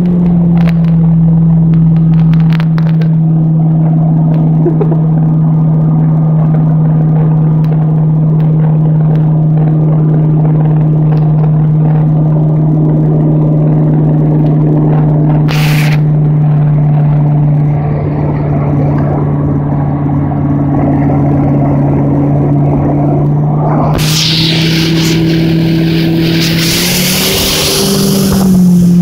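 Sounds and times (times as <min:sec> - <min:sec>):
boat engine droning: 0:00.0 - 0:29.0
brief hiss: 0:15.5 - 0:16.0, 0:23.8 - 0:29.0.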